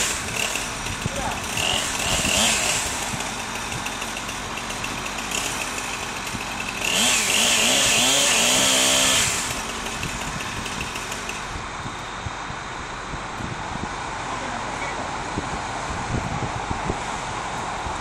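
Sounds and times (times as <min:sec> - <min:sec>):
chainsaw revving and idling: 0:00.0 - 0:11.6.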